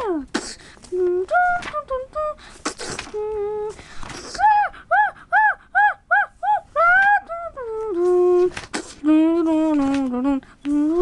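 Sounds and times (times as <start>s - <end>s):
person making high-pitched squeaks: 2.6s - 11.0s.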